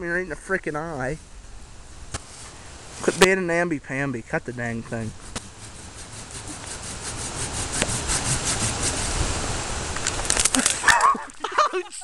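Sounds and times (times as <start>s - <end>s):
hand saw cutting wood: 5.2s - 9.3s.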